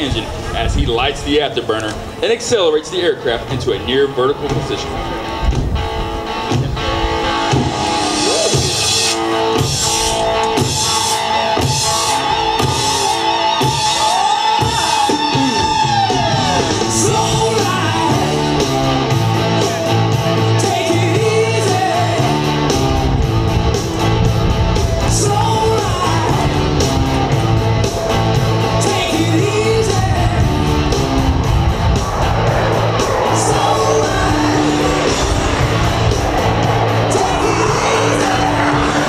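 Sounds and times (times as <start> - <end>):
guitar: 0.0 - 39.0
rock song with singing: 4.2 - 39.0
steady bass line: 14.6 - 39.0.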